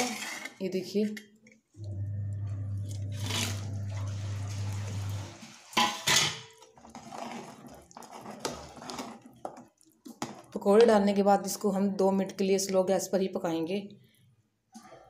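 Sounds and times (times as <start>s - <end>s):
steady low hum: 1.8s - 5.3s.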